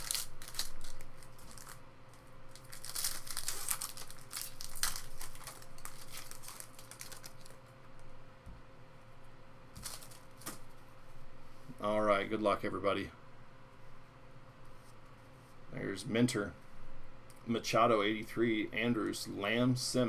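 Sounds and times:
foil wrapper crinkling: 0.0s - 7.6s, 9.8s - 10.6s.

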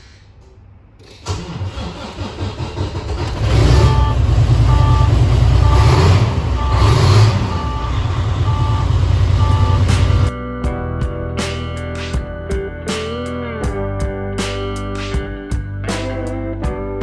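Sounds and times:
diesel truck engine starting: 1.0s - 10.3s
dashboard warning beeps: 3.6s - 10.3s.

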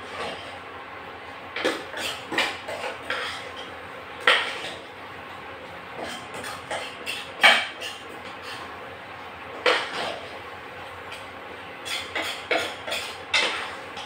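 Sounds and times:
metal spoon scraping a saucepan: 1.9s - 4.8s, 9.7s - 10.3s, 11.8s - 13.8s.

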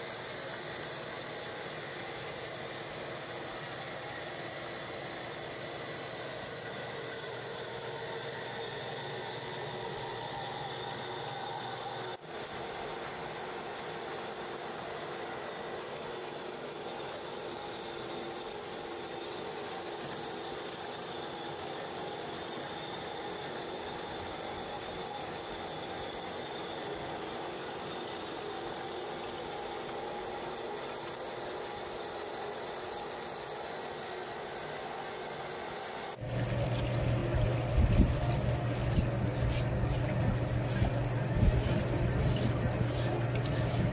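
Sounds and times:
machine drive hum: 36.1s - 43.9s
deep machine hum: 36.2s - 43.9s
water washing over deck: 36.2s - 43.9s.

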